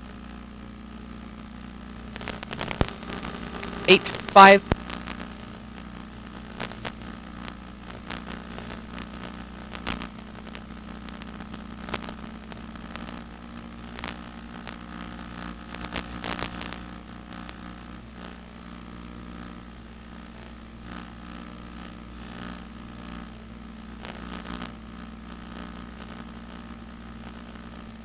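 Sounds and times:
crackling clicks: 2.8 - 4.8.

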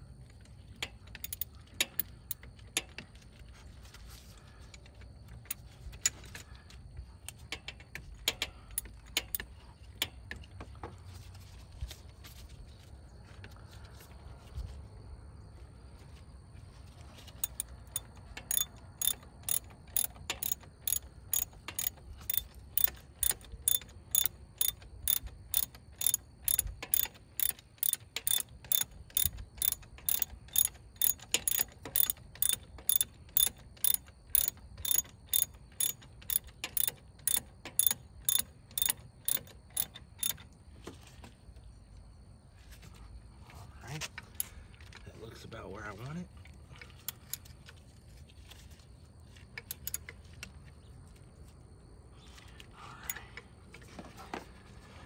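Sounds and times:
ratchet wrench clicking: 0.8 - 2.9, 7.3 - 10.2, 17.4 - 40.4, 49.7 - 50.0.

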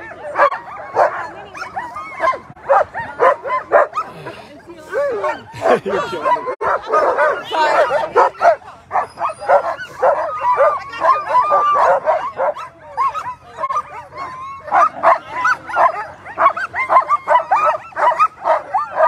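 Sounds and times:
dogs barking and yipping: 0.0 - 19.0
dogs whining: 4.9 - 19.0.

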